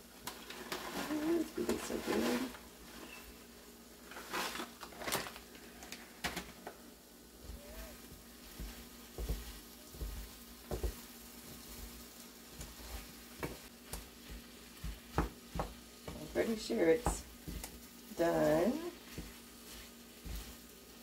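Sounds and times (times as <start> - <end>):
food sizzling in a skillet: 0.0 - 21.0
wooden spoon scraping a pan: 0.3 - 6.2, 7.4 - 21.0
plastic bag crinkling: 4.0 - 6.7.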